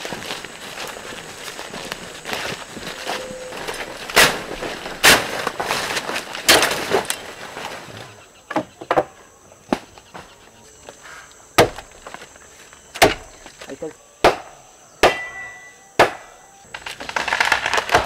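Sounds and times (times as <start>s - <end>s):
machete chopping tree trunk: 5.0s - 5.5s, 11.6s - 11.9s, 13.0s - 13.3s, 14.2s - 15.4s, 16.0s - 16.3s.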